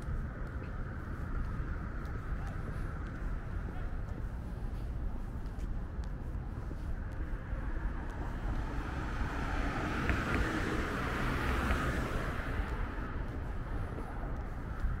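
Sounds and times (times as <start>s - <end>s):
car driving past: 8.6s - 13.1s.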